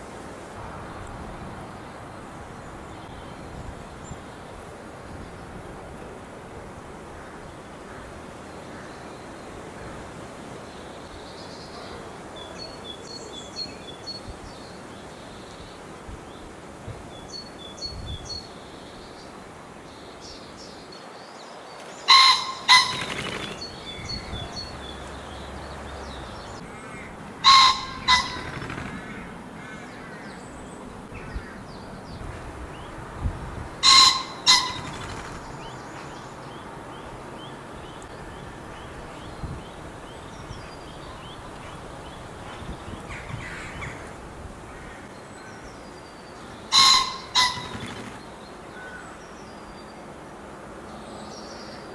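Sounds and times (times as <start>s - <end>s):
small songbirds chirping: 10.6s - 27.1s, 34.5s - 44.3s
pheasant crowing: 22.1s - 25.2s, 26.6s - 30.2s, 33.8s - 35.4s, 46.7s - 48.2s.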